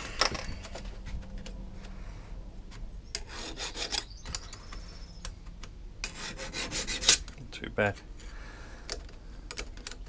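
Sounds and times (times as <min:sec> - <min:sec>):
file rasping on chain: 0:03.2 - 0:04.1, 0:06.0 - 0:07.2.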